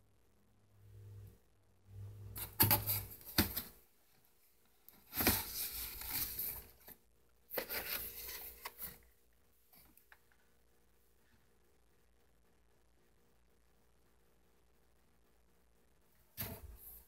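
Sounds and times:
cardboard scraping and rubbing: 5.0 - 6.9, 7.5 - 9.0.

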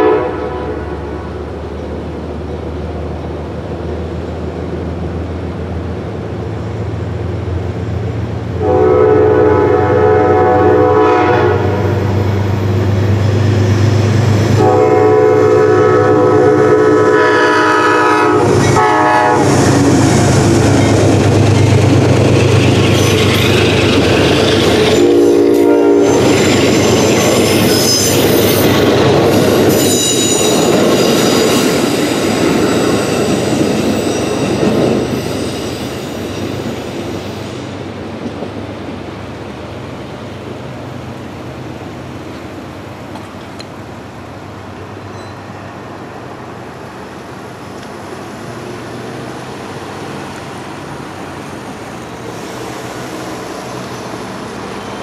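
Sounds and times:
train air horn blasts: 0.0 - 1.4, 8.6 - 12.0, 14.5 - 20.0, 24.7 - 26.3
train wheels rumbling on rails: 0.0 - 55.0.

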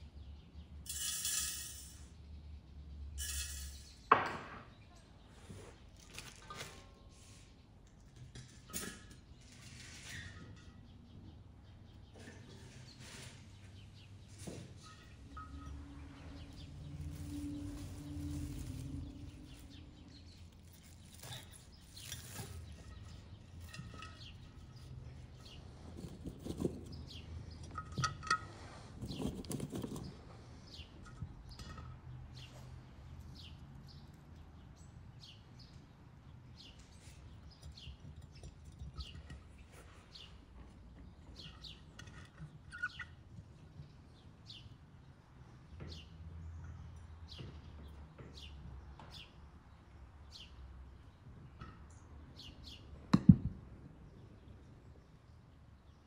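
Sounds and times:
small birds chirping: 9.2 - 53.0
vegetables rustling and knocking: 16.5 - 25.0.

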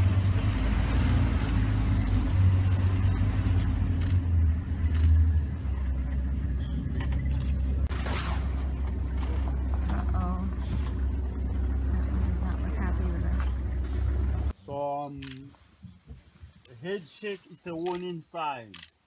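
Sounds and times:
vehicle engine rumble: 0.0 - 19.0.

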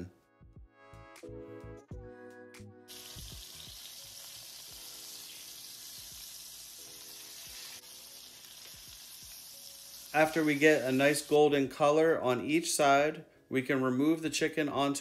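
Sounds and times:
chicken searing in a pan: 2.9 - 12.0.

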